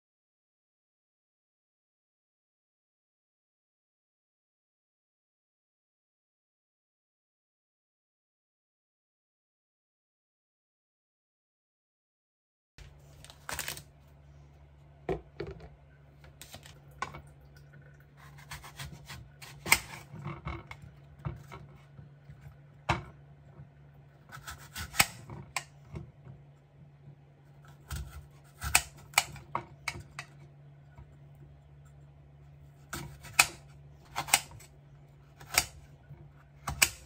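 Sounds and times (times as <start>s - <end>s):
steady low hum: 12.8s - 37.0s
knife cutting on ceramic plate: 18.2s - 21.6s.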